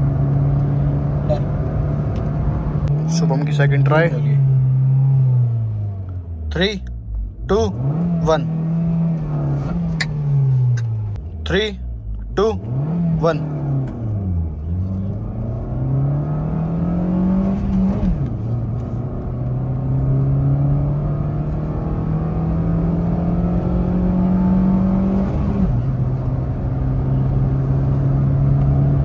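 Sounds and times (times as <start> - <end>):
car engine accelerating: 0.0 - 29.0.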